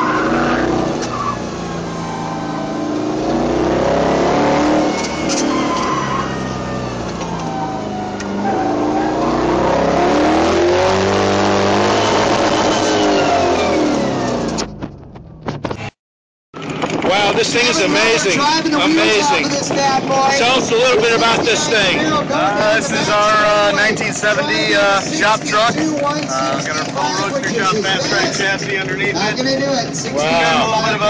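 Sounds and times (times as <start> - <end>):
tires squealing: 0.0 - 14.3
pickup engine revving: 0.0 - 14.8.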